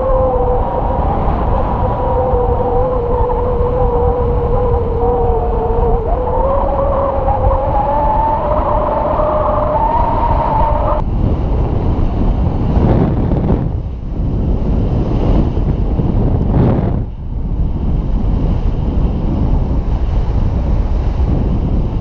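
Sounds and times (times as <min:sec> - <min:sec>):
steady whistling tone: 0:00.0 - 0:11.0
wind buffeting camera: 0:00.0 - 0:22.0.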